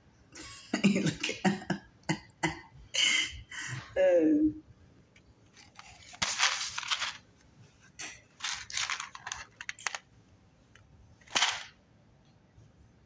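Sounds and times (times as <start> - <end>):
dry cereal rattling on paper plate: 5.6 - 7.2, 8.4 - 10.1.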